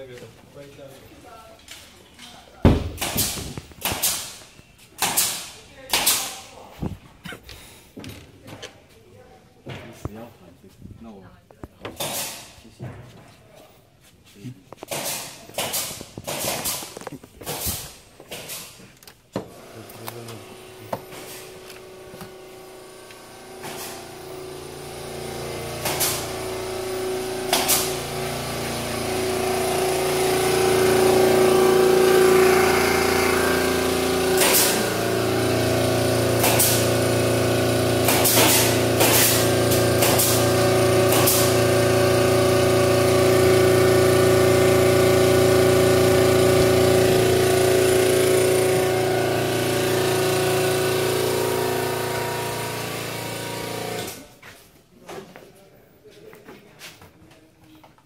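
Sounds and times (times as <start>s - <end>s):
machine motor humming: 19.5s - 54.2s.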